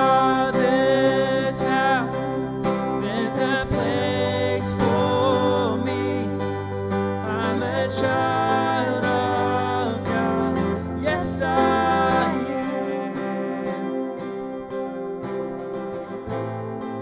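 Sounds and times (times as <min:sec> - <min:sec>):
keyboard playing: 0:00.0 - 0:17.0
strummed acoustic guitar: 0:00.0 - 0:17.0
woman singing: 0:07.3 - 0:14.1.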